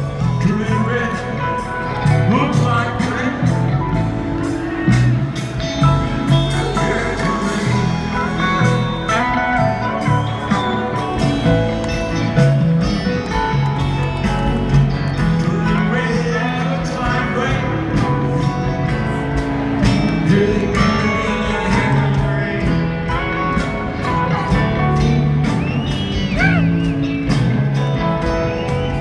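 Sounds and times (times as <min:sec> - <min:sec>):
live rock band: 0:00.0 - 0:29.0
person singing: 0:15.4 - 0:18.7, 0:20.1 - 0:23.3.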